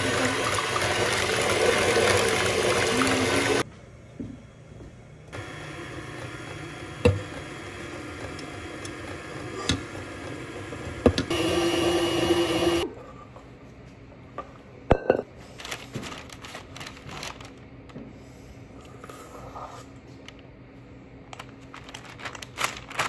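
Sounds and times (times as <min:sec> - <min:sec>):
stand mixer whisking: 0:00.0 - 0:03.6, 0:05.4 - 0:12.8.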